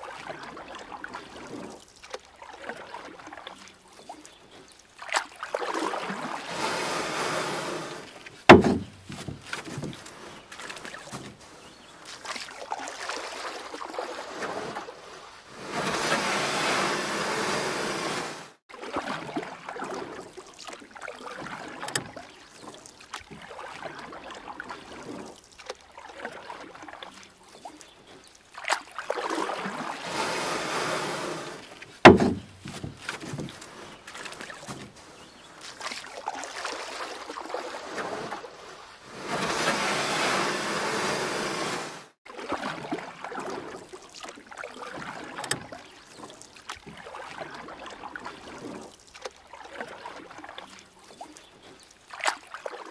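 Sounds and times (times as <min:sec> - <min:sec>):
paddle splashing water: 0:00.0 - 0:52.9
water lapping: 0:00.0 - 0:52.9
knocks on kayak hull: 0:08.5 - 0:10.0, 0:32.0 - 0:33.6.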